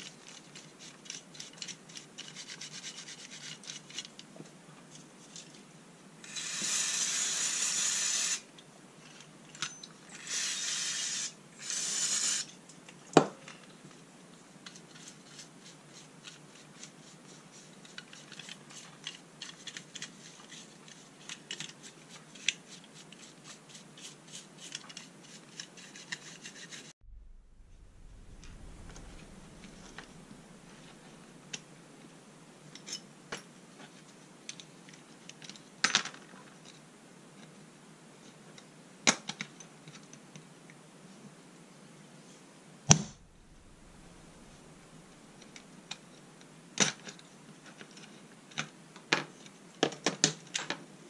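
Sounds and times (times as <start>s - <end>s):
loud hissing: 27.0s - 31.5s, 42.9s - 45.9s.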